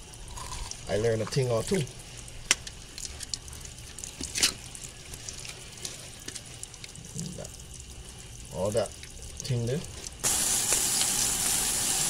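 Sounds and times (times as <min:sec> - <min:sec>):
scrubbing crabs: 0:00.8 - 0:11.2
running water splashing: 0:00.8 - 0:12.0.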